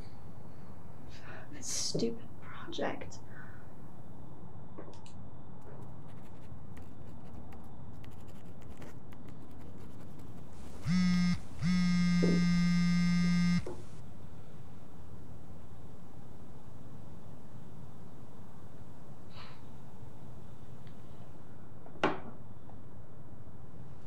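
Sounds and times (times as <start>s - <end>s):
phone vibrating against desk: 10.8s - 13.9s.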